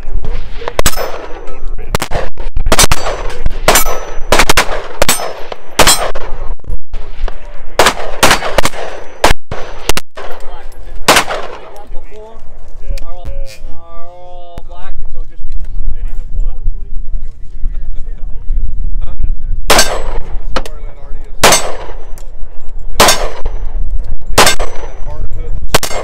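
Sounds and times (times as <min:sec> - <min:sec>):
pistol shots: 0:00.4 - 0:07.1, 0:07.8 - 0:10.4, 0:11.1 - 0:11.8, 0:19.7 - 0:20.7, 0:21.4 - 0:22.4, 0:23.0 - 0:26.0
steel targets pinging: 0:05.0 - 0:06.3.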